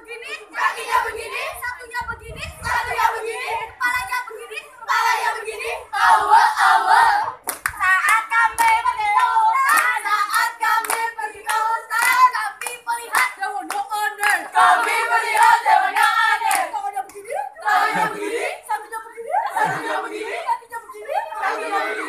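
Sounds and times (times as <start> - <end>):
group chanting a cheer: 0.2 - 1.6, 2.6 - 3.8, 4.5 - 7.4, 14.0 - 16.8, 17.6 - 18.7, 19.5 - 20.5, 21.3 - 22.0
sharp hand claps: 7.4 - 17.2.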